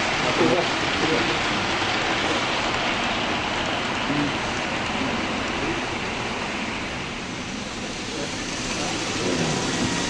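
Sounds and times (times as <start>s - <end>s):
model train wheels rattling on rails: 7.5s - 10.0s.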